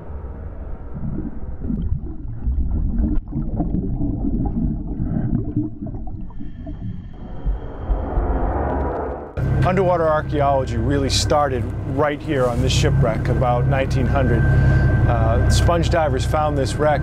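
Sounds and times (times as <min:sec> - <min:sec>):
underwater rumbling and gurgling: 0:00.0 - 0:12.0.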